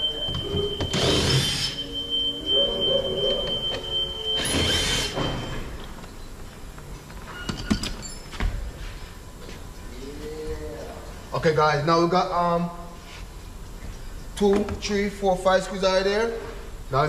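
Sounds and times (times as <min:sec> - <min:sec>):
power tool bursts: 0:00.9 - 0:01.8, 0:04.4 - 0:05.6.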